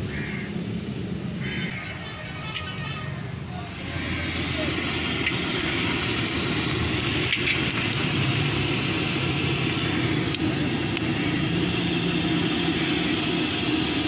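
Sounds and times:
food frying in hot oil: 0:03.8 - 0:14.0.

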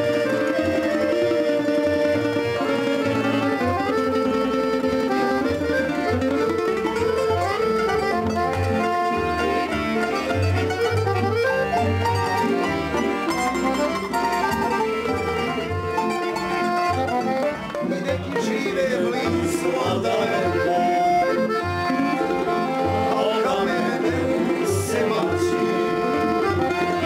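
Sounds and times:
bass notes: 0:00.0 - 0:27.0
piano accordion: 0:00.0 - 0:27.0
plucked string instruments: 0:00.0 - 0:27.0.

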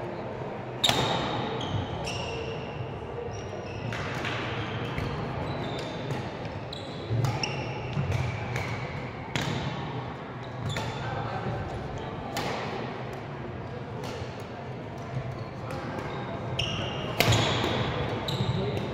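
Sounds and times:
murmur of voices: 0:00.0 - 0:18.9
shoes squeaking on court floor: 0:00.8 - 0:02.6, 0:03.3 - 0:08.4, 0:15.2 - 0:18.9
racket hitting shuttlecock: 0:17.2 - 0:17.8.

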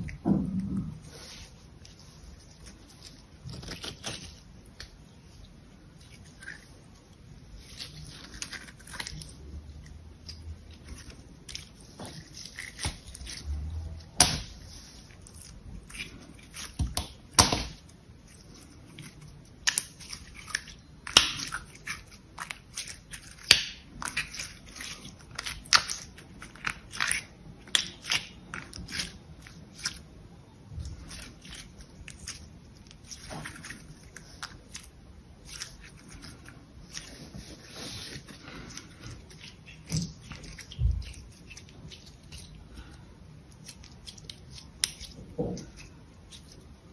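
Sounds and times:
slime clicking and popping: 0:19.5 - 0:30.0.

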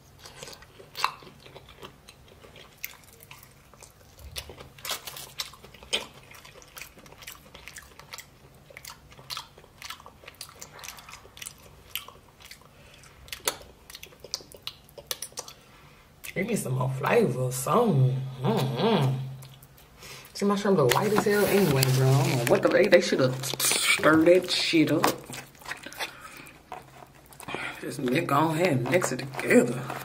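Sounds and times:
person chewing: 0:00.0 - 0:16.4, 0:18.5 - 0:30.0.

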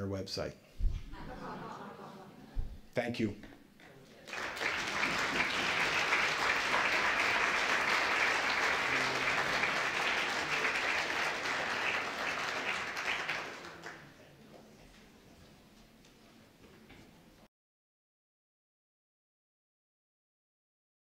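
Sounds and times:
audience applauding: 0:04.2 - 0:14.2.

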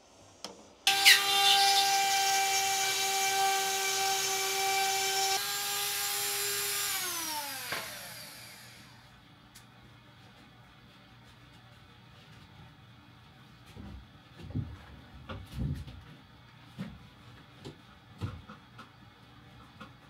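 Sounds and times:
power tool motor whine: 0:00.9 - 0:09.0.

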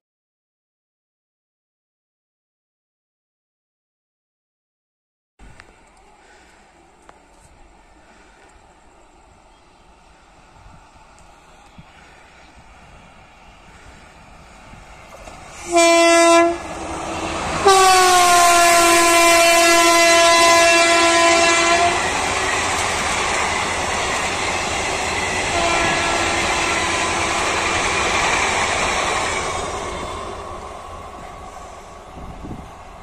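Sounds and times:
train rumble and wheel clatter: 0:05.5 - 0:33.0
train horn blasts: 0:15.5 - 0:22.2, 0:25.4 - 0:28.1.

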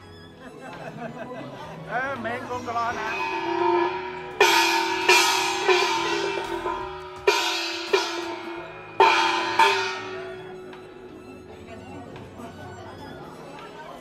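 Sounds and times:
gongs struck with beater: 0:02.6 - 0:11.0.

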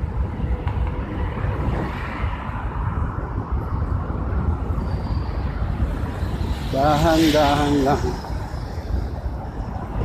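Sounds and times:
road traffic rumble: 0:00.0 - 0:10.0
vehicle tyre noise passing: 0:00.0 - 0:10.0.

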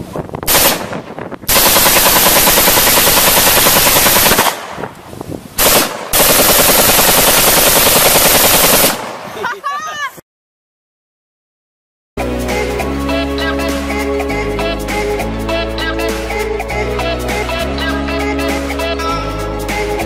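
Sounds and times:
rifle firing automatic bursts: 0:00.5 - 0:00.9, 0:01.5 - 0:04.7, 0:05.6 - 0:09.3.

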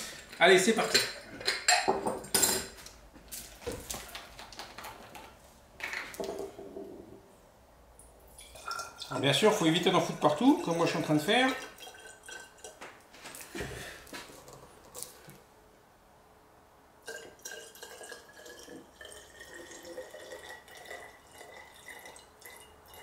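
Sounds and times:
liquid trickling into bottle: 0:08.3 - 0:09.2, 0:10.0 - 0:12.8, 0:17.0 - 0:23.0.

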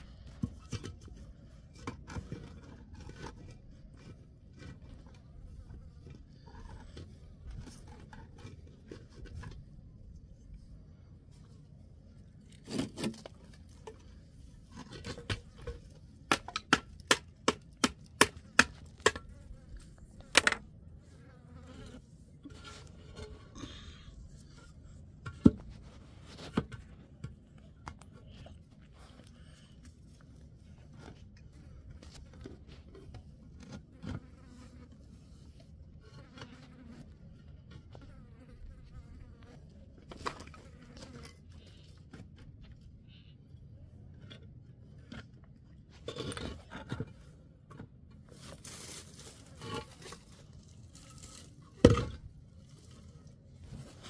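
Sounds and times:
rustling noise: 0:24.2 - 0:27.3, 0:48.2 - 0:51.8.

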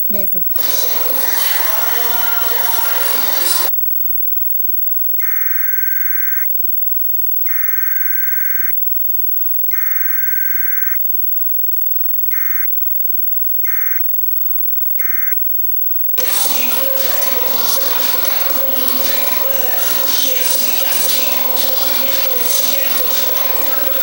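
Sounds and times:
faint steady hiss: 0:00.1 - 0:03.7, 0:16.2 - 0:24.0
electronic beeps: 0:16.2 - 0:24.0.

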